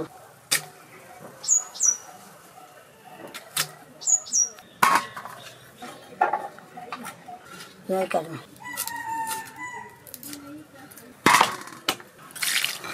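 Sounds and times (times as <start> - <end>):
small bird chirping: 1.4 - 2.1, 4.0 - 4.8.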